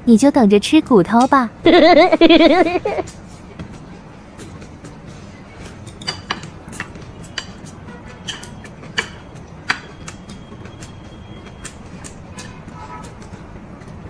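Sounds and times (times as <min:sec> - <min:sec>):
chopsticks clicking on dishes: 0:05.9 - 0:10.3.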